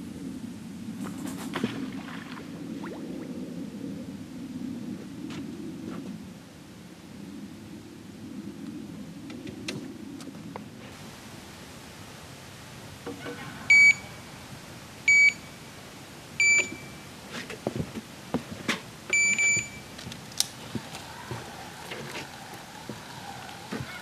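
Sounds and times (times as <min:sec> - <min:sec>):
bite alarm beeps: 0:13.7 - 0:14.2, 0:15.1 - 0:15.6, 0:16.4 - 0:17.0, 0:19.1 - 0:19.9.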